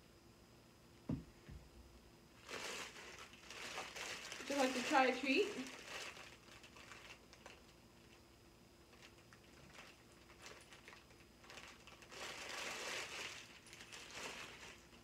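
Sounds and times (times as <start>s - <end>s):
plastic bag crinkling: 2.4s - 8.2s, 8.9s - 15.0s.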